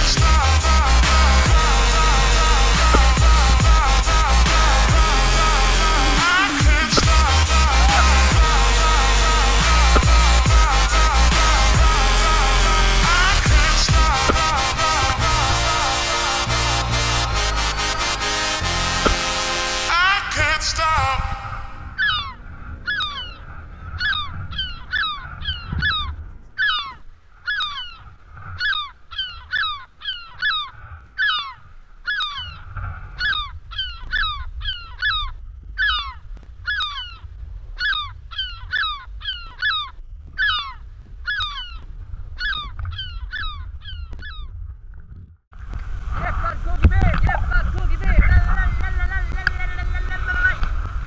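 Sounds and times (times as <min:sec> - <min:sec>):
bird giving harsh falling calls: 0:00.0 - 0:20.7, 0:21.8 - 0:37.2, 0:37.8 - 0:41.8
wind rumble on microphone: 0:20.3 - 0:51.0.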